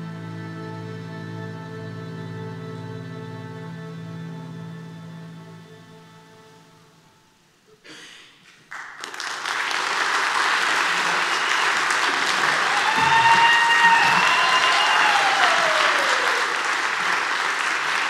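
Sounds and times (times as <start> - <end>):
audience applause: 8.7 - 18.0
people cheering: 9.1 - 18.0.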